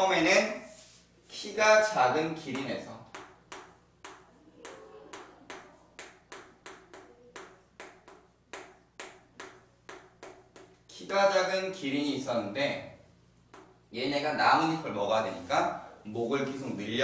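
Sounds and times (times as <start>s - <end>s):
chalk tapping and scraping on chalkboard: 0.6s - 1.1s, 2.4s - 10.8s, 13.5s - 13.8s.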